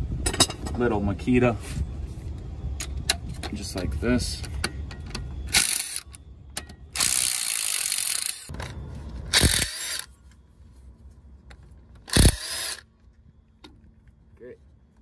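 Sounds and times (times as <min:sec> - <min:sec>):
cordless power tool spinning: 0:09.3 - 0:10.1, 0:12.1 - 0:12.8.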